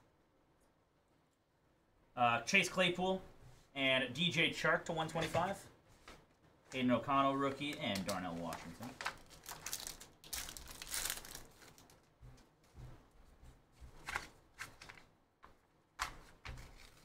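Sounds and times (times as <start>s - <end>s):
cards being handled: 7.4s - 12.5s, 13.8s - 17.0s
foil wrapper tearing and crinkling: 7.8s - 12.0s.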